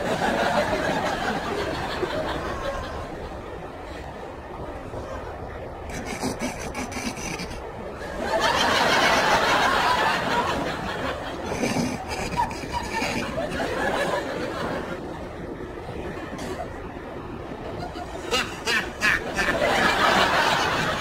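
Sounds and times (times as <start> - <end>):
studio audience laughing: 8.2 - 15.0, 17.8 - 21.0.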